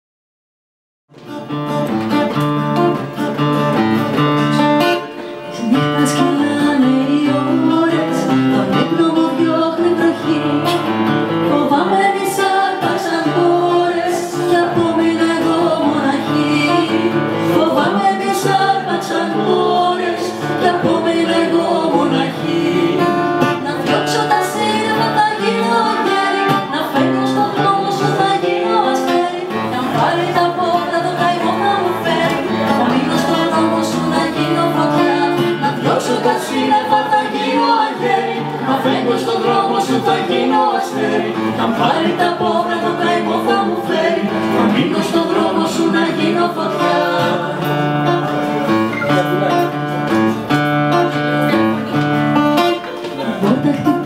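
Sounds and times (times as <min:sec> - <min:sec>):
acoustic guitar: 0:01.1 - 0:54.0
woman singing: 0:05.5 - 0:47.7.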